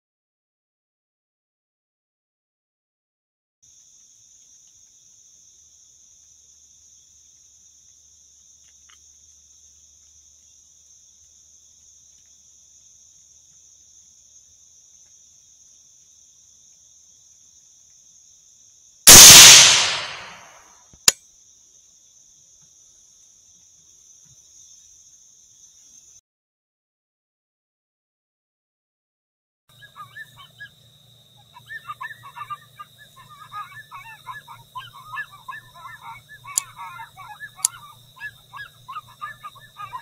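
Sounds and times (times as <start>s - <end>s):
suppressed rifle shot: 19.1s - 20.5s.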